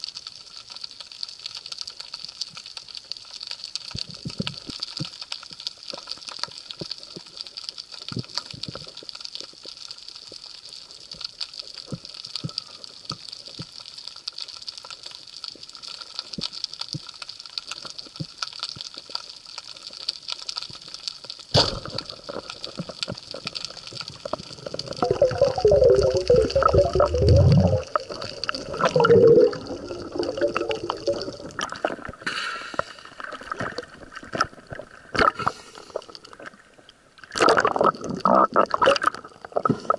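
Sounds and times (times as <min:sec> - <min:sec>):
water bubbling and gurgling: 0:21.8 - 0:39.9
underwater hiss: 0:24.8 - 0:33.5, 0:35.2 - 0:36.2.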